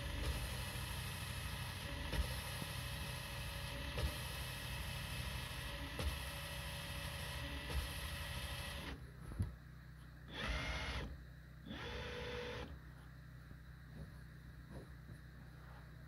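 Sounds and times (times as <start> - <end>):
cordless drill whirring: 10.3 - 11.1, 11.7 - 12.7.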